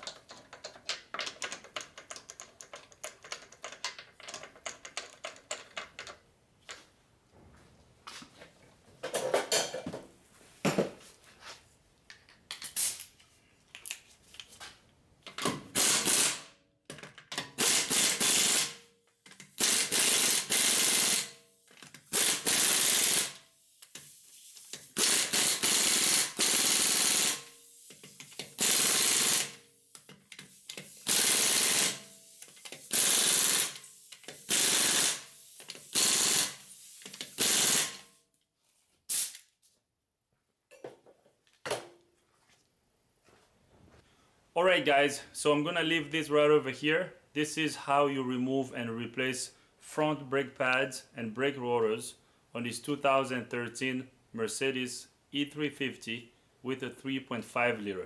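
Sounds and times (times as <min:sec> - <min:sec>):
impact wrench hammering: 0:31.1 - 0:32.0.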